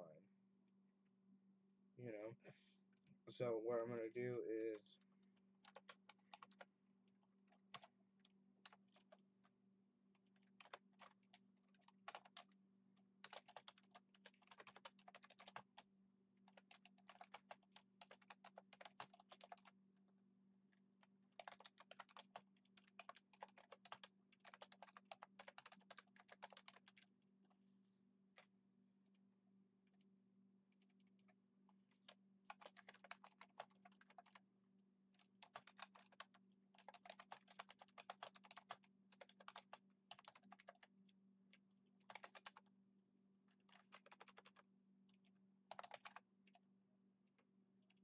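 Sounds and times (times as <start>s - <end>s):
typing on computer keyboard: 5.6s - 6.7s, 7.5s - 9.2s, 10.2s - 12.6s, 13.2s - 19.8s, 21.3s - 27.1s, 31.9s - 34.4s, 35.2s - 41.0s, 42.0s - 42.7s, 43.6s - 46.6s.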